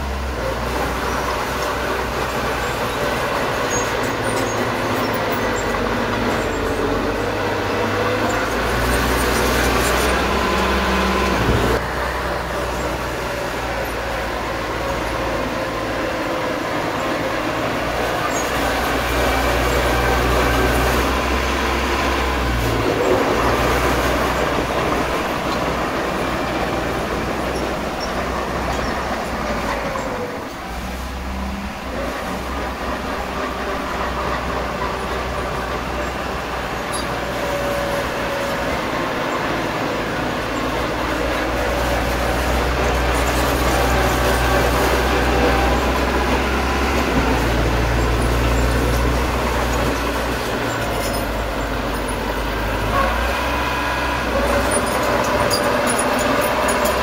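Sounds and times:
bulldozer diesel engine under load: 0.0 - 57.0.

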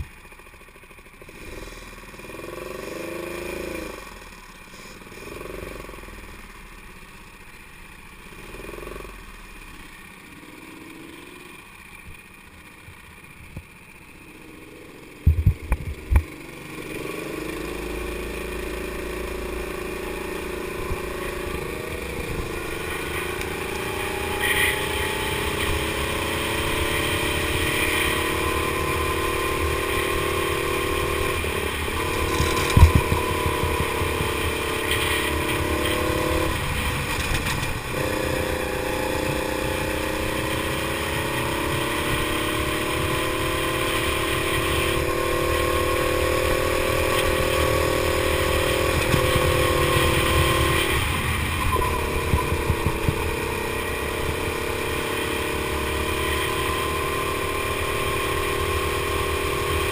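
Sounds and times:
go-kart engine running hard: 0.0 - 59.9.

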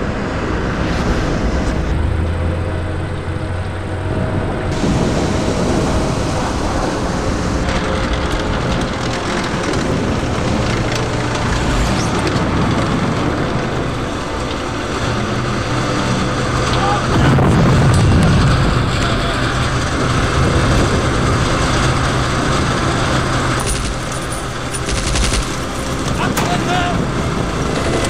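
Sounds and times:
tank engine running: 0.0 - 28.0
tank tracks clattering: 16.7 - 28.0.

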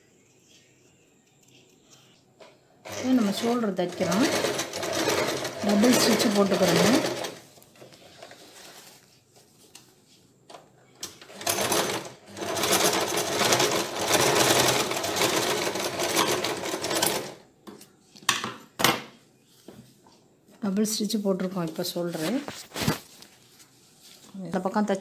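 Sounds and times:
sewing machine stitching: 2.8 - 7.5, 11.1 - 17.4.

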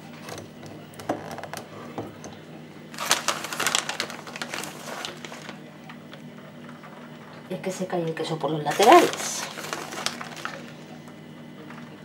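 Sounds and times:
plastic bag crinkling: 2.9 - 5.7, 8.7 - 11.0.

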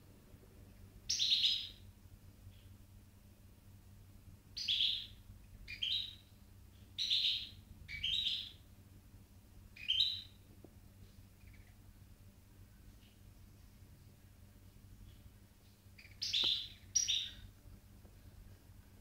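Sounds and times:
bird chirping calls: 1.1 - 1.8, 4.6 - 8.6, 9.8 - 10.4, 16.0 - 17.5.

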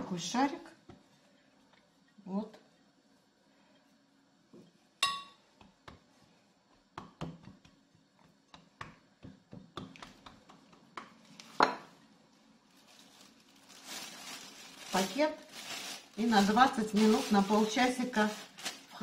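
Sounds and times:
hands patting dough in a bowl: 5.4 - 11.8.

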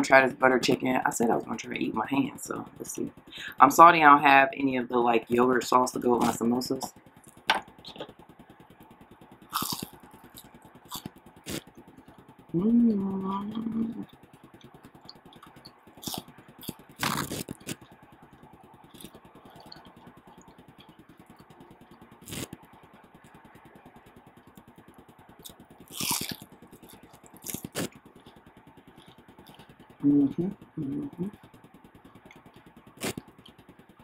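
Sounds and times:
faint background hum: 0.0 - 34.0
eating scrapes and clicks: 9.4 - 23.4, 24.4 - 30.0, 30.6 - 33.9.

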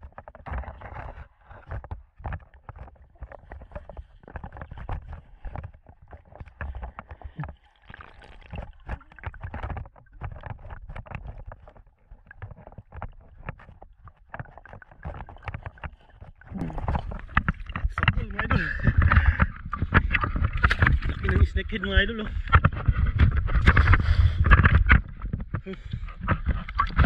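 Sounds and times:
low underwater rumble: 0.0 - 27.0
water sloshing underwater: 0.0 - 27.0.

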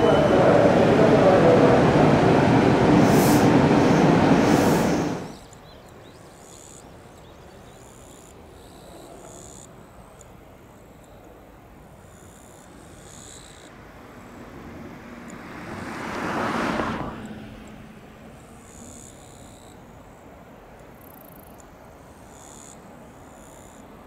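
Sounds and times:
approaching train rumble: 0.0 - 5.4, 13.7 - 18.8
train running noise: 0.0 - 5.4.

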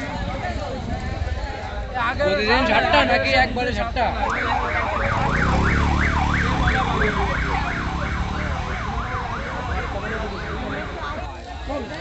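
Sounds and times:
warbling electronic siren: 4.2 - 11.0.

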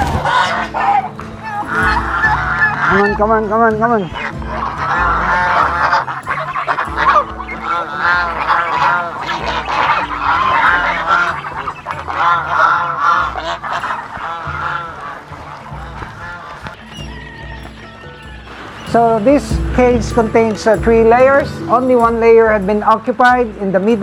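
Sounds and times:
geese honking: 0.0 - 24.0.

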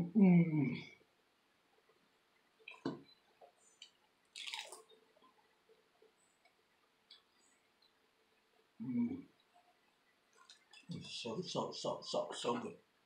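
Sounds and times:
faint chewing clicks: 2.6 - 8.6, 9.2 - 11.0
crisp crunch of biting tostada: 4.3 - 4.9.

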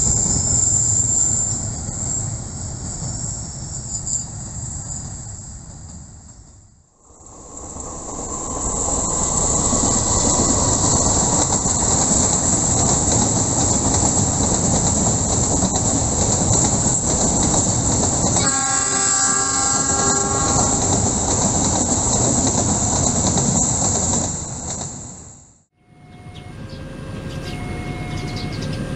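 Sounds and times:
freight train rumbling past: 0.0 - 28.9
locomotive horn: 18.4 - 21.0.

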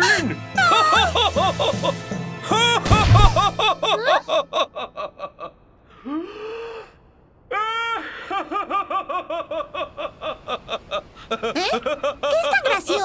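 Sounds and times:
cartoon characters laughing: 0.6 - 5.5
dull low thud: 2.9 - 3.7.

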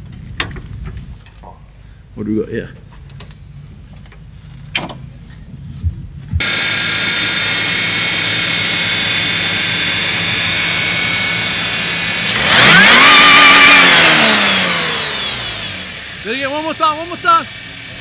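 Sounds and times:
high supercharger whine: 3.5 - 18.0
car engine running: 5.7 - 18.0
engine revving: 6.3 - 18.0.

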